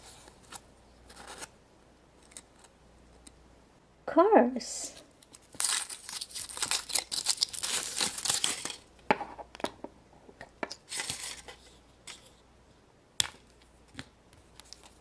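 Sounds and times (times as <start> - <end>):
foil wrapper crinkling and tearing: 5.2 - 8.9.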